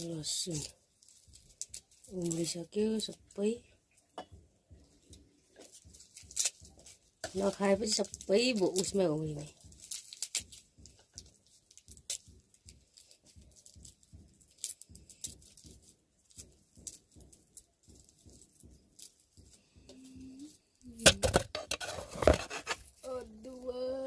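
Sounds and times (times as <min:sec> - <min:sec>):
knife scraping garlic: 0:21.3 - 0:22.9.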